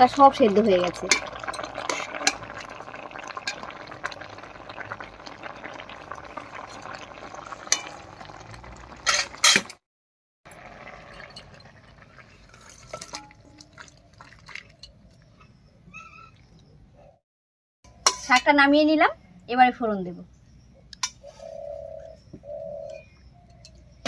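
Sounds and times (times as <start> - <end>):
food bubbling in a wok: 0.0 - 9.8, 10.5 - 15.2.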